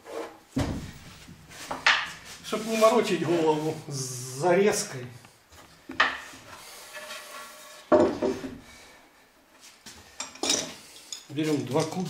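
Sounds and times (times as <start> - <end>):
wood rubbing and scraping: 0.0 - 4.1, 5.6 - 8.7
wood knocking on wood: 7.9 - 8.6.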